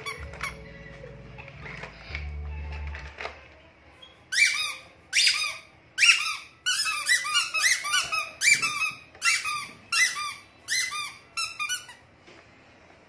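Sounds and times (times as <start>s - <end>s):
rubber squeeze toys squeaking: 0.0s - 1.0s, 4.0s - 12.1s.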